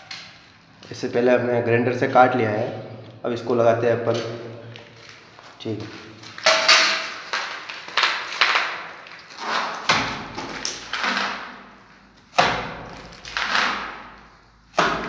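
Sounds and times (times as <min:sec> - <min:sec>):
mortar slapping into brick wall: 0:06.4 - 0:11.6, 0:12.3 - 0:15.0.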